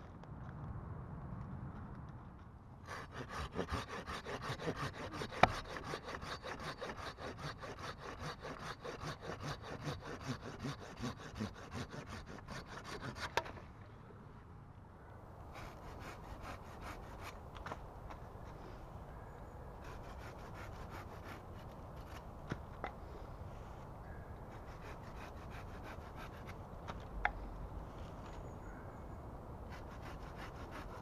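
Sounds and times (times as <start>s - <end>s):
hand saw cutting branch: 2.9s - 13.6s, 15.5s - 17.8s, 19.8s - 22.3s, 24.5s - 26.6s, 29.7s - 31.0s.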